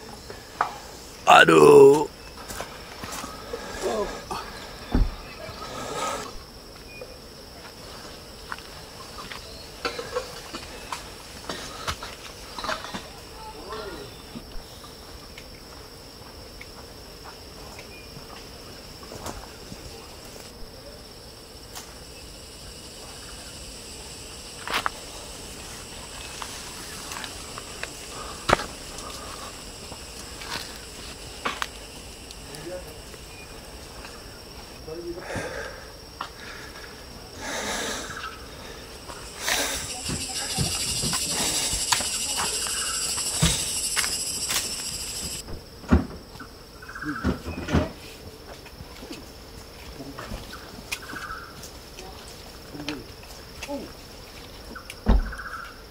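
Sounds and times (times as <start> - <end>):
high-pitched insect chorus: 0.0 - 55.9
footsteps on trail: 40.8 - 45.4.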